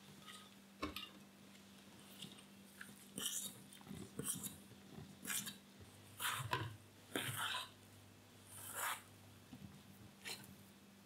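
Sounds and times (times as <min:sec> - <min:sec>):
spoon mixing dough in metal bowl: 0:01.9 - 0:07.8, 0:08.6 - 0:10.5.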